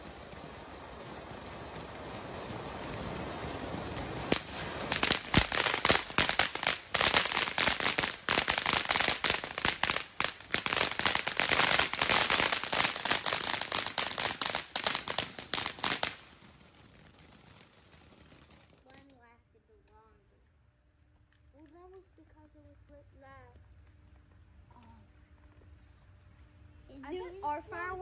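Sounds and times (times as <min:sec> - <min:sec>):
sharp firework bang: 0:00.0 - 0:10.0
fireworks popping and crackling: 0:00.0 - 0:20.2, 0:20.9 - 0:26.2.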